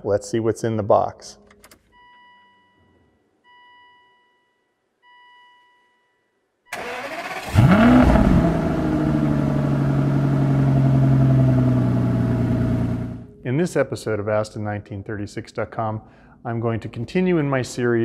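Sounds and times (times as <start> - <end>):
car engine starting and idling: 6.7 - 13.3.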